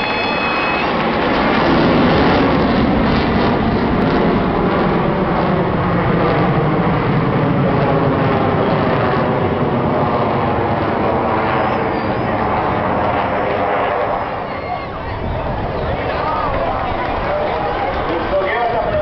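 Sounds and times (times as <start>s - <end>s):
fighter jet flying overhead: 0.0s - 19.0s.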